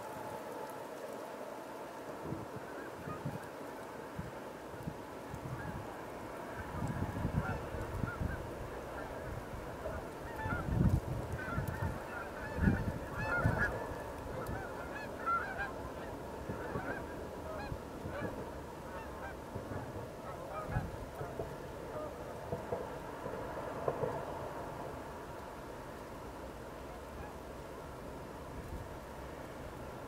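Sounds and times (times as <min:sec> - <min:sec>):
wind rumbling on microphone: 0:00.0 - 0:30.0
geese honking: 0:02.7 - 0:03.5, 0:05.4 - 0:23.0, 0:26.8 - 0:28.0.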